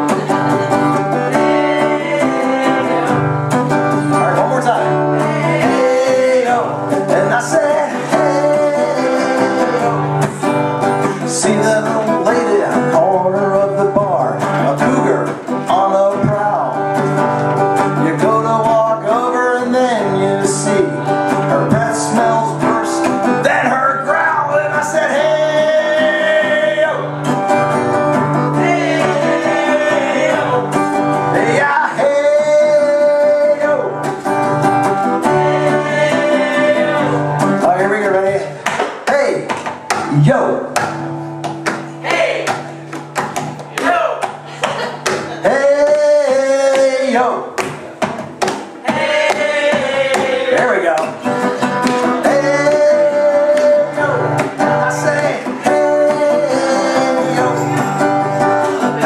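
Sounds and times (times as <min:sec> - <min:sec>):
man singing: 0:00.0 - 0:27.5, 0:28.2 - 0:34.3, 0:34.9 - 0:40.8, 0:43.7 - 0:47.8, 0:48.8 - 0:59.0
acoustic guitar strumming: 0:00.0 - 0:59.0.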